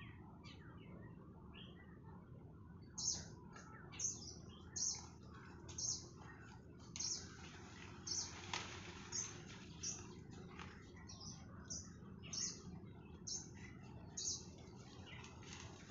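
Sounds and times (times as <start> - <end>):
leaves and twigs rustling: 4.0 - 15.9
branch snapping: 7.8 - 10.0.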